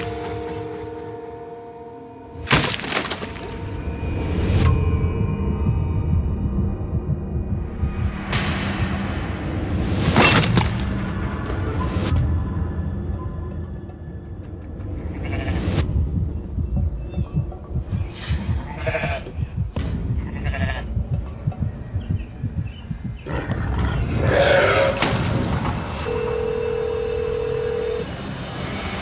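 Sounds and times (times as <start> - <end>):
dark pulsing music with hits: 0.0 - 26.8
sheep bleating: 18.7 - 19.3, 20.2 - 20.9.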